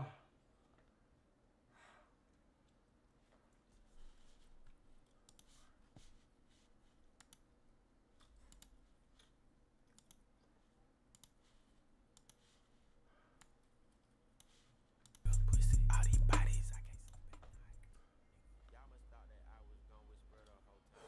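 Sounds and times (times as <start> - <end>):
faint irregular clicks: 7.1 - 7.5, 8.2 - 11.5, 12.1 - 12.6.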